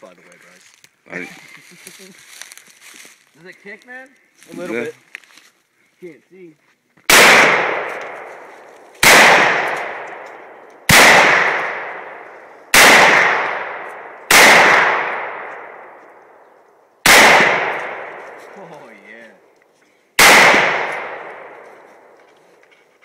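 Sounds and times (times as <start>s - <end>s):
rifle shots echoing: 7.1s - 16.4s, 17.0s - 18.6s, 20.2s - 22.2s.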